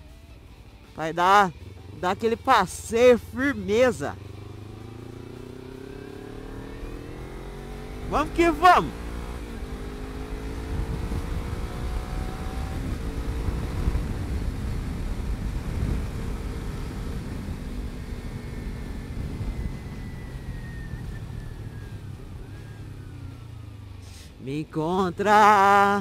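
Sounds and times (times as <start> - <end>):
wind and road noise: 0.0 - 26.0
motorcycle engine accelerating: 1.5 - 26.0
thin engine whine: 3.1 - 24.4.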